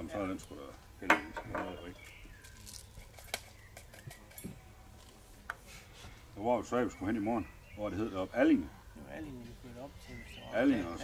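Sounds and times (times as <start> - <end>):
tableware knocking on table: 1.1 - 1.8
faint bird chirps: 6.5 - 11.0.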